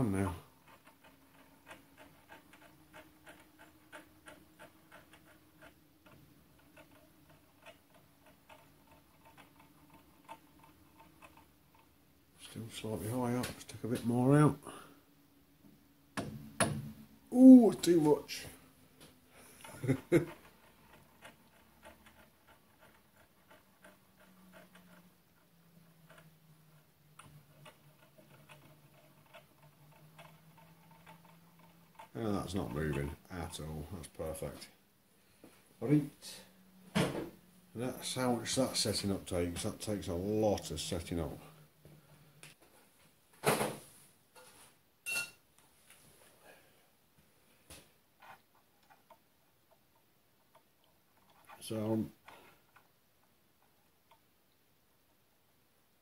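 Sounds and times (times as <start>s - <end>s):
faint irregular clicks and taps: 0.0s - 12.6s, 18.4s - 34.8s, 47.2s - 55.2s.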